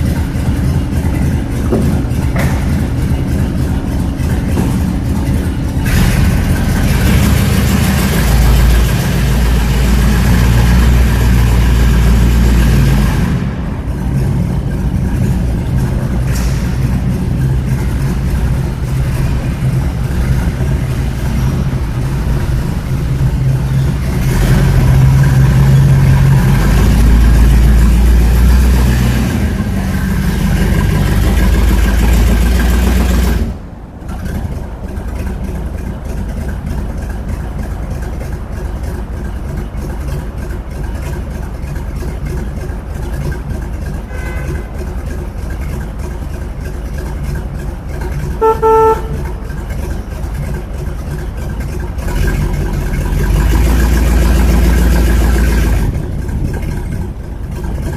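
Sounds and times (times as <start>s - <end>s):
car engine running: 0.0s - 57.9s
car horn beep: 44.1s - 44.7s, 48.4s - 49.4s.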